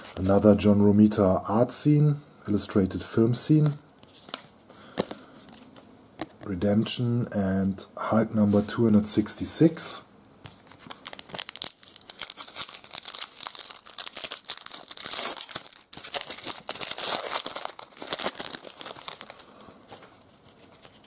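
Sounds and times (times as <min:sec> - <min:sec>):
foil wrapper tearing and crinkling: 0:10.7 - 0:21.0.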